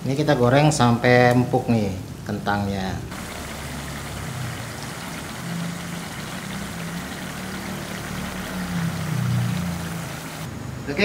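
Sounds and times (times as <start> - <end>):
potato sizzling in hot oil: 3.1 - 10.5.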